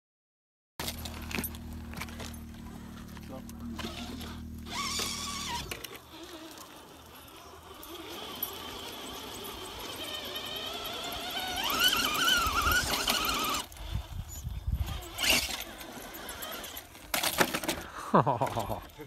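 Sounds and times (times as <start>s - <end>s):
toy truck electric motor whining: 0.8s - 19.0s.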